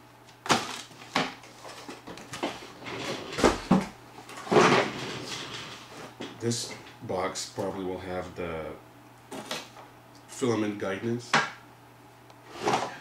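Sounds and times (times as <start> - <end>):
box scraping on floor: 2.4 - 6.2, 12.4 - 13.0.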